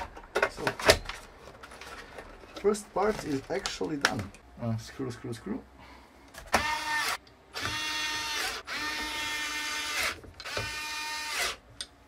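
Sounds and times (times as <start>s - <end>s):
electric screwdriver motor whining: 6.6s - 11.6s.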